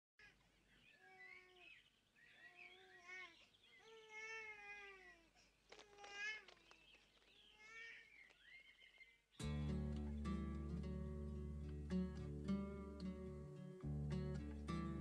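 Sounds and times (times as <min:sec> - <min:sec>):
faint bird chirps: 0:00.2 - 0:09.5
child speaking: 0:02.7 - 0:06.5, 0:07.6 - 0:08.1.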